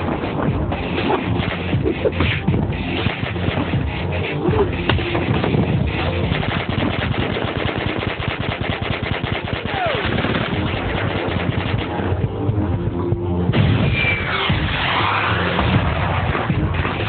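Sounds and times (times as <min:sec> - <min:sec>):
machine-gun fire: 0:05.0 - 0:12.2.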